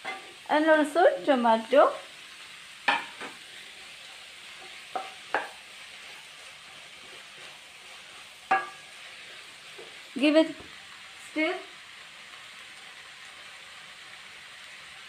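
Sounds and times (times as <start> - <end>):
vegetables sizzling in a pan: 0.0 - 15.0
spatula knocking against pan: 2.9 - 3.4, 4.9 - 5.6, 8.5 - 8.8.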